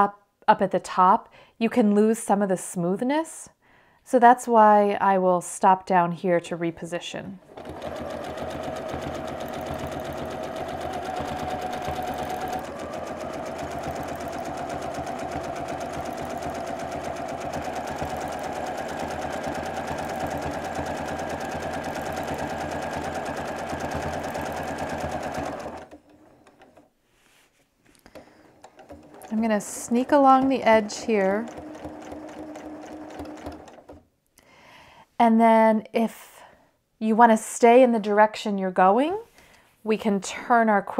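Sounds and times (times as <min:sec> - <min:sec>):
sewing machine stitching: 0:07.4 - 0:26.9, 0:28.0 - 0:34.0.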